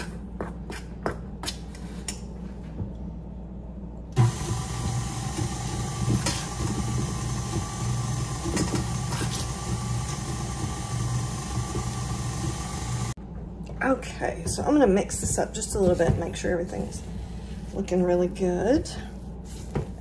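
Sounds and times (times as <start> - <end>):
stand mixer motor running: 4.2 - 13.2.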